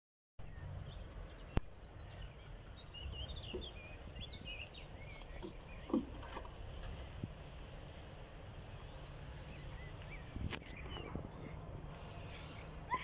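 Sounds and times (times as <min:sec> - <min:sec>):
small birds chirping: 0:00.4 - 0:13.0
wind rumbling on microphone: 0:05.7 - 0:12.8.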